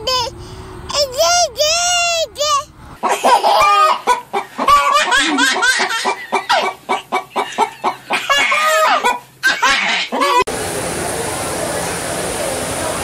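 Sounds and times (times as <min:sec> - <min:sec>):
chickens clucking: 0:03.0 - 0:10.5.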